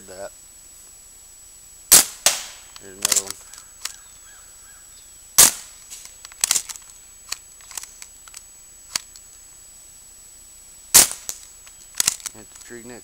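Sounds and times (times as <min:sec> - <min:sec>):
bb gun shot: 0:01.9 - 0:03.4, 0:05.4 - 0:05.8, 0:10.9 - 0:11.5.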